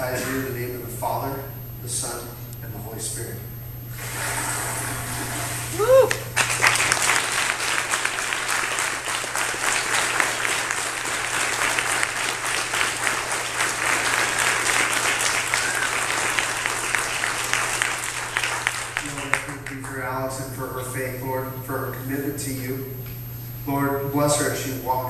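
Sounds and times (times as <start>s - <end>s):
crowd clapping: 5.8s - 20.1s.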